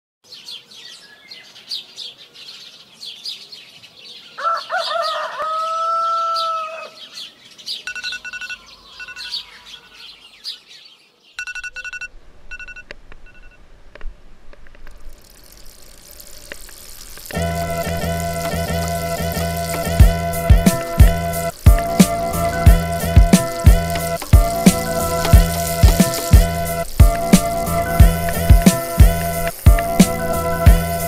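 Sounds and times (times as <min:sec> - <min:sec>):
small birds chirping: 0:00.2 - 0:12.0, 0:15.0 - 0:31.0
rooster crowing: 0:04.4 - 0:07.1.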